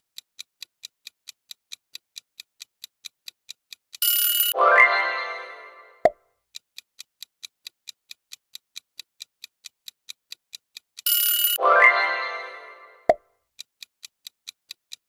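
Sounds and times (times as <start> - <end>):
clock ticking: 0.0 - 15.0
rising ringing chime: 4.6 - 6.0, 11.6 - 13.1.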